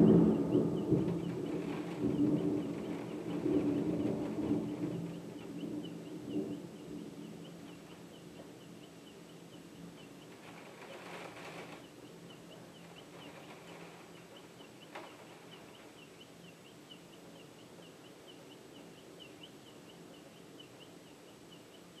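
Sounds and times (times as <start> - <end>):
thunder rumbling: 0.0 - 8.5.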